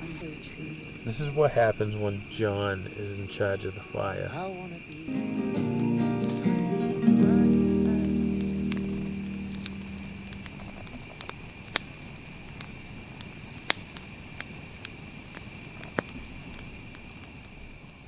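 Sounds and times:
campfire crackling and popping: 0.0s - 18.0s
faint high-pitched drone: 5.1s - 11.0s.

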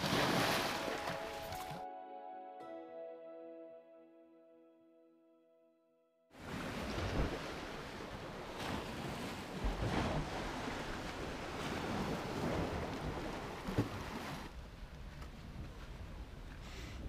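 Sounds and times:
sea waves against rocks: 0.0s - 1.8s, 6.4s - 16.6s.

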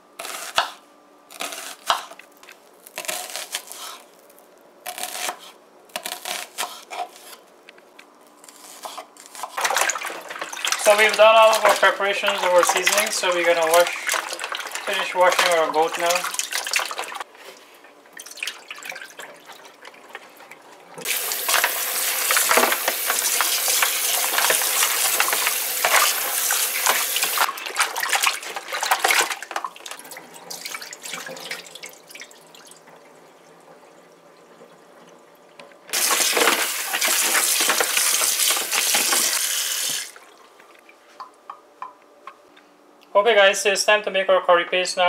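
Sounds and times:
hands splashing meat in water: 9.6s - 17.2s, 21.0s - 32.3s.

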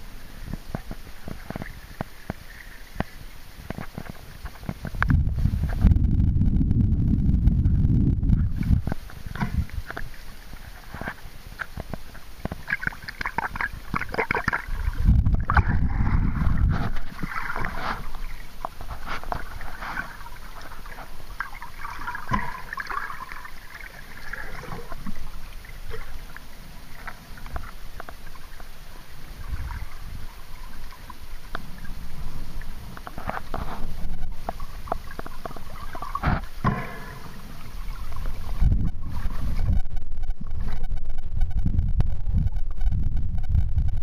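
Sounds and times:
water gurgling and bubbling: 0.0s - 44.0s
loud low rumble: 5.2s - 8.6s
crackling clicks: 8.4s - 23.1s, 23.9s - 28.8s, 32.6s - 44.0s.

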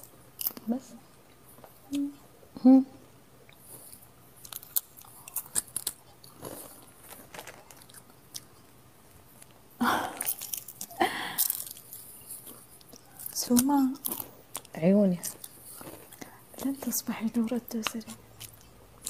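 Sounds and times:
crunching a crisp snack: 3.7s - 8.8s, 9.4s - 17.0s, 17.7s - 19.0s.

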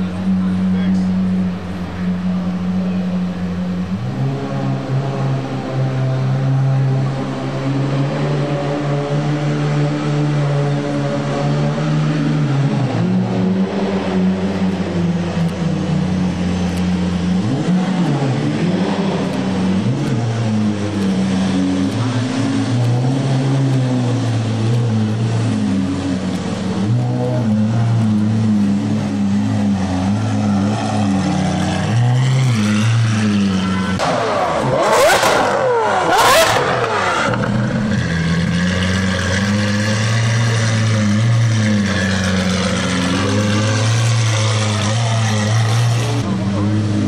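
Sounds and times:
car engine droning and revving: 0.0s - 47.0s.

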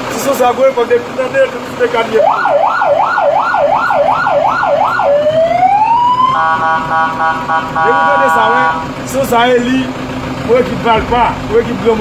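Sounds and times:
electronic siren yelping: 2.2s - 9.0s
steady horn blast: 6.3s - 9.1s.

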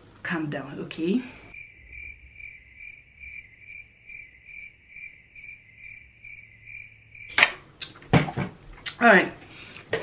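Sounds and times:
cricket chirping: 1.5s - 7.6s.

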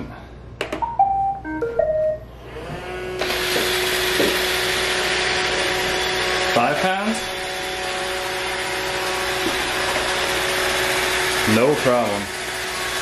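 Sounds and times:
beeped start-up tune: 0.8s - 2.3s
robot vacuum motors running: 2.4s - 13.0s.

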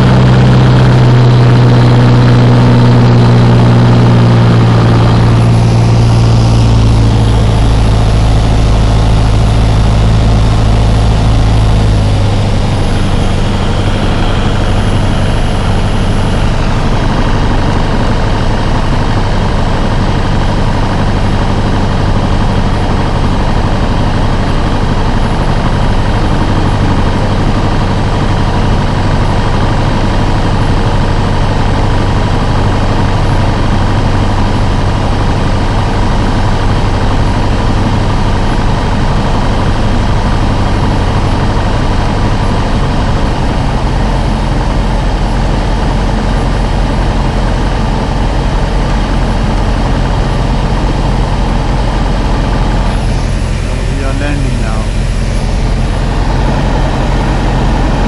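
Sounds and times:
light aircraft engine droning: 0.0s - 58.0s.

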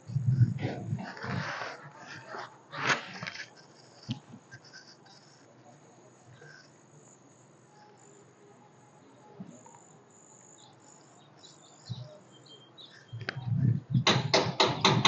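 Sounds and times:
high-pitched insect chirping: 2.5s - 14.0s.

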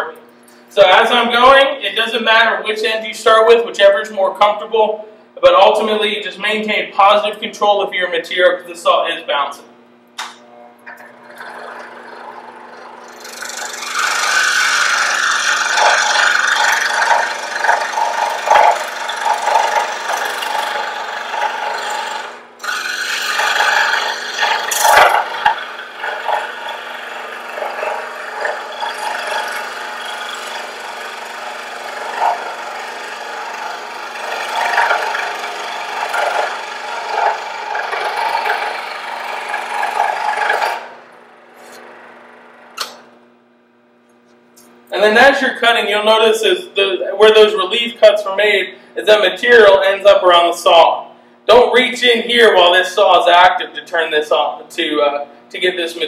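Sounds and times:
scroll saw cutting wood: 10.9s - 43.0s.

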